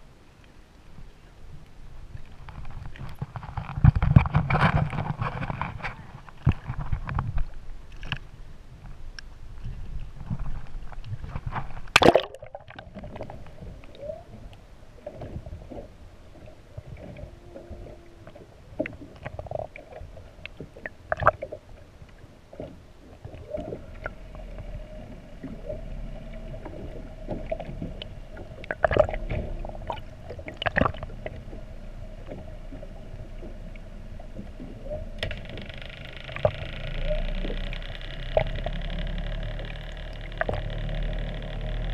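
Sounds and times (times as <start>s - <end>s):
muffled underwater hum: 8.8s - 22.1s, 22.7s - 41.9s
camera splashing into water: 11.8s - 12.9s.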